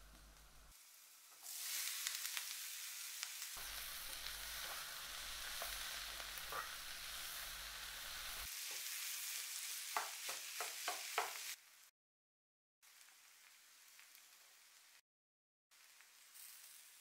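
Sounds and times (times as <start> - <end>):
potatoes sizzling in a pan: 0.1 - 11.9, 12.8 - 15.0, 15.7 - 17.0
spatula scraping a pan: 4.0 - 7.4.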